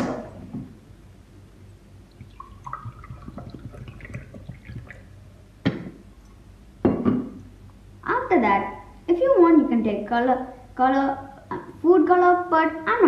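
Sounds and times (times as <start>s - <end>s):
water pouring into glass: 2.1s - 5.2s
sharp knocks: 5.6s - 6.0s.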